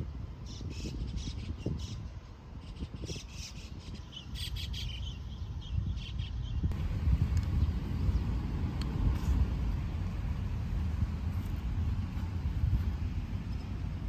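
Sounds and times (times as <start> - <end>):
distant road traffic: 0.0 - 14.0
wind rumble: 0.0 - 14.0
small birds chirping: 0.4 - 6.8, 12.8 - 14.0.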